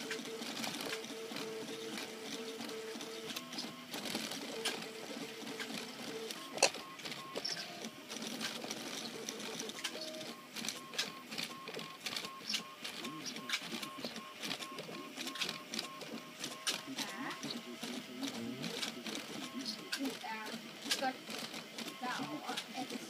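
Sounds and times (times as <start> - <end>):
stepper motors whining: 0.0 - 23.0.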